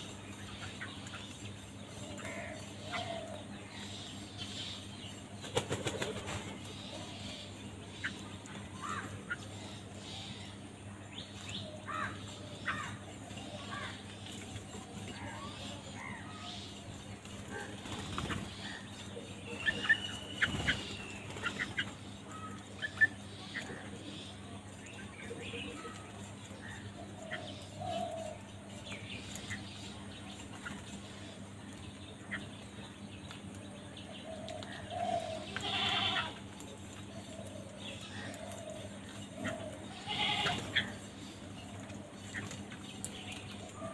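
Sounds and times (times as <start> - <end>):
steady low hum: 0.0 - 43.9
crows cawing: 8.8 - 9.2, 11.9 - 13.0, 35.0 - 36.4, 40.1 - 41.0.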